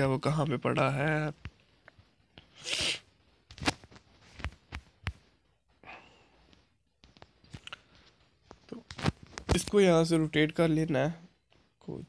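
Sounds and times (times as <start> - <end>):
man breathing: 5.7 - 6.6.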